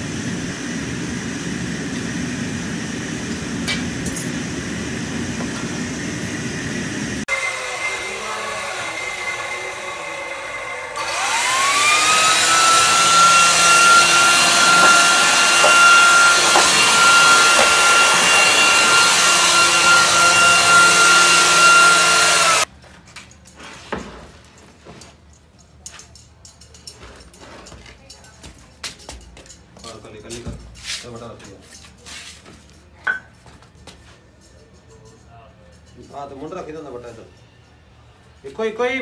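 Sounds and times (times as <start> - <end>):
electric air blower whining: 0.0 - 22.7.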